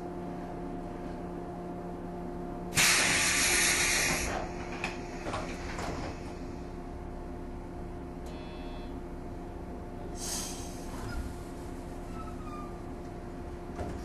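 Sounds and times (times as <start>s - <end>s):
electric train hum: 0.0s - 14.0s
compressed air hiss: 2.8s - 4.6s, 10.2s - 10.9s.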